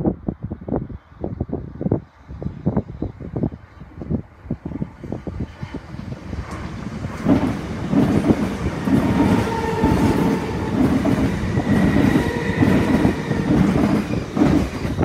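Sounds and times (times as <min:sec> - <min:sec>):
train rumble: 0:02.1 - 0:15.0
train wheels rhythm on rails: 0:04.4 - 0:15.0.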